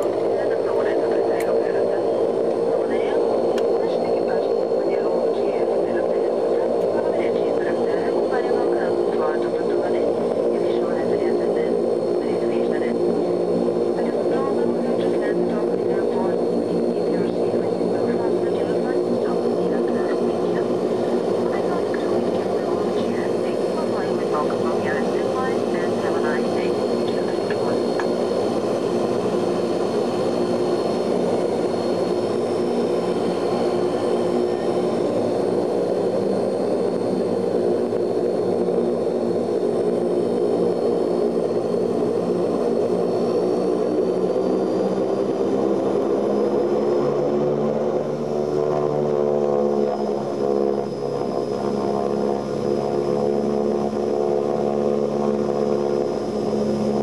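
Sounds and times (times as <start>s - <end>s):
propeller engine drone: 0.0s - 57.0s.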